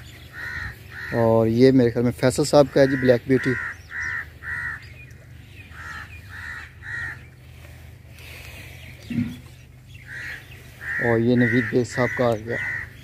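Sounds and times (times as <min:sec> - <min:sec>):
crows cawing: 0:00.0 - 0:01.5, 0:02.4 - 0:05.0, 0:05.7 - 0:08.5, 0:10.0 - 0:13.0
steady low hum: 0:00.0 - 0:13.0.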